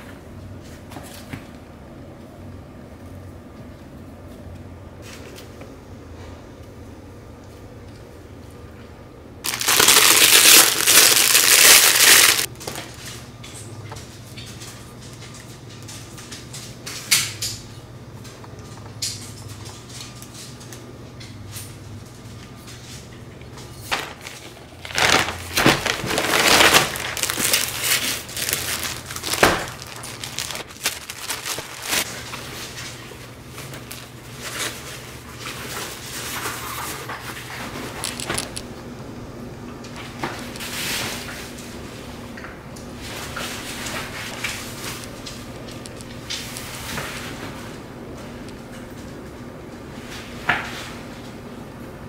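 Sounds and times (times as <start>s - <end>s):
packaging rustling and crinkling: 9.4s - 12.5s, 23.9s - 32.6s, 33.5s - 38.6s.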